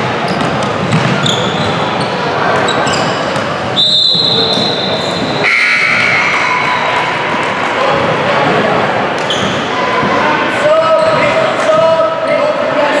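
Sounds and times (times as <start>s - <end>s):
crowd murmur: 0.0s - 13.0s
sneaker squeaks: 0.2s - 6.8s, 9.2s - 10.1s, 10.8s - 11.5s.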